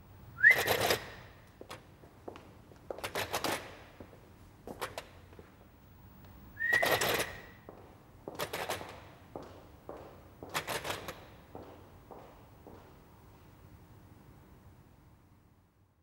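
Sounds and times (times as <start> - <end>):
short rising whistle: 0.4 - 1.2, 6.6 - 7.5.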